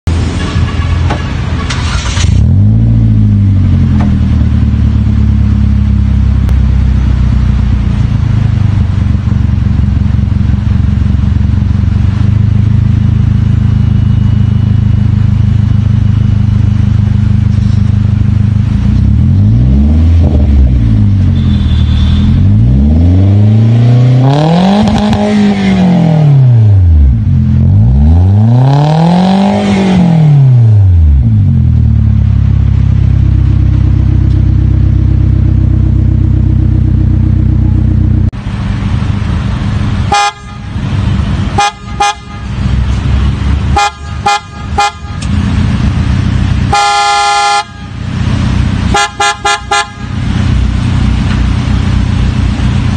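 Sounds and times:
car engine idling and revving: 0.0s - 52.9s.

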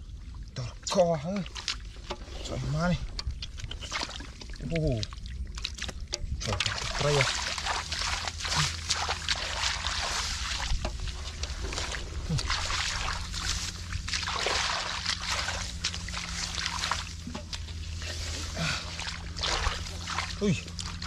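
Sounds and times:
water splashes and trickles: 0.0s - 21.0s
hands sloshing in muddy water: 0.1s - 21.0s.

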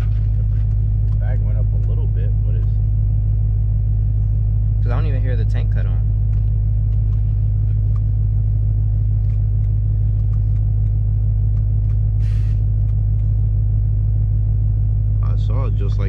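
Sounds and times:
car engine idling: 0.0s - 16.0s
brief hiss: 12.2s - 12.6s.

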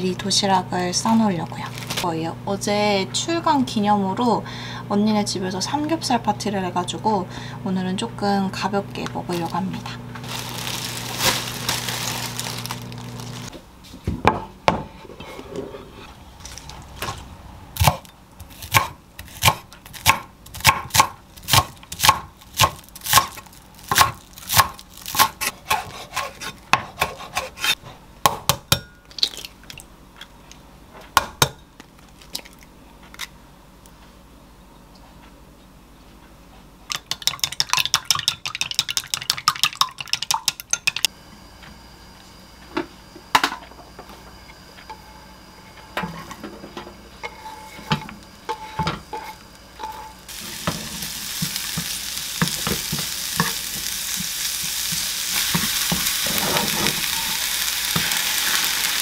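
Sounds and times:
plastic bag crinkling: 1.0s - 2.1s, 9.3s - 13.5s, 22.4s - 25.2s
knife chopping on wooden board: 17.8s - 28.6s
chopsticks beating eggs in bowl: 36.9s - 41.0s.

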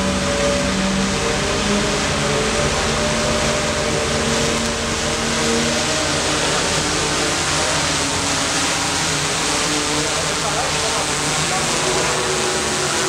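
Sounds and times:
drone propellers whirring: 0.0s - 13.0s.

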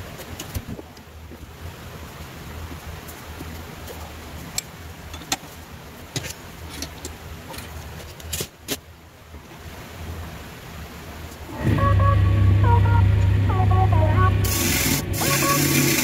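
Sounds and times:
low background hum: 0.0s - 16.0s
metallic clicks and knocks: 4.5s - 8.5s.

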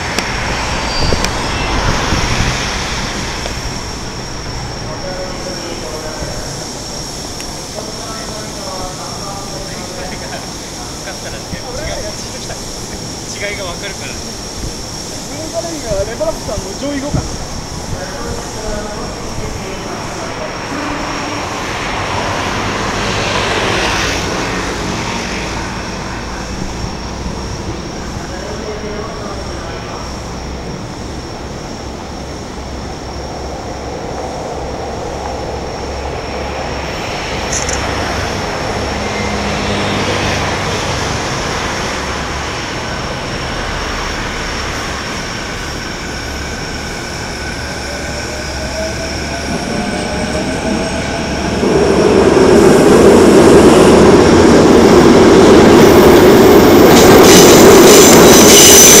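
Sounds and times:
rising whine: 0.0s - 8.8s, 17.2s - 59.0s
train passing: 0.0s - 59.0s
rail joint clicks: 37.4s - 39.3s.

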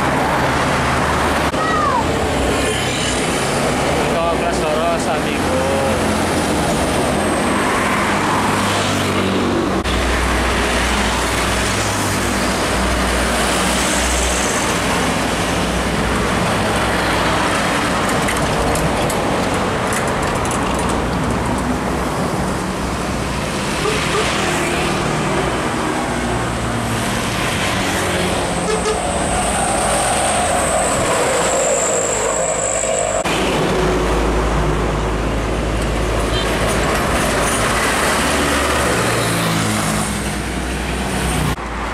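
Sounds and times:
loud road noise: 0.0s - 41.9s
trucks passing: 0.0s - 41.9s
motorcycles passing: 20.8s - 41.9s.

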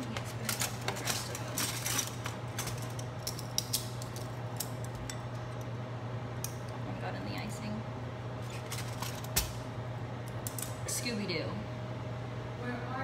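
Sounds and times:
plastic spoons clicking and rattling: 0.0s - 5.0s.

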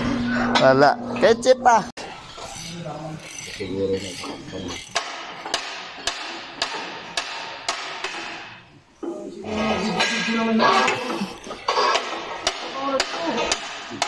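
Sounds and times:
hammer striking metal: 3.2s - 8.7s, 11.7s - 14.0s.

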